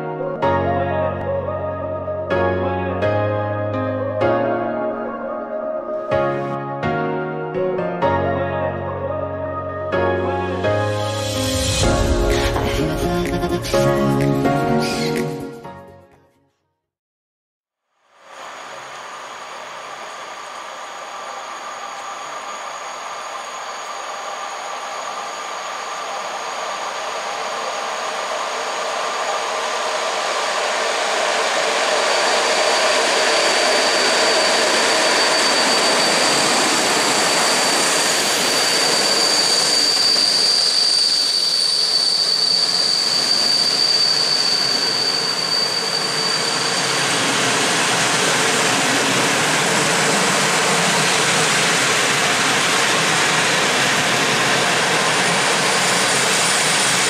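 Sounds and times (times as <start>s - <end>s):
train rolling past: 18.2s - 57.0s
high wheel squeal: 18.4s - 57.0s.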